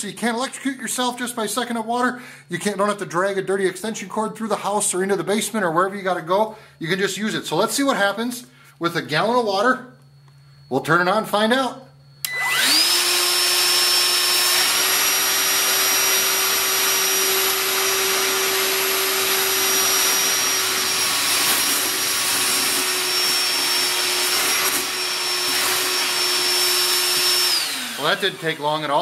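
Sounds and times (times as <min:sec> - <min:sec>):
wet vacuum whining: 0:12.2 - 0:29.0.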